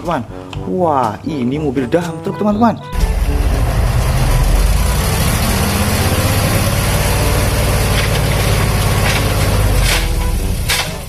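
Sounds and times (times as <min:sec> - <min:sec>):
truck engine running: 0:02.9 - 0:11.0.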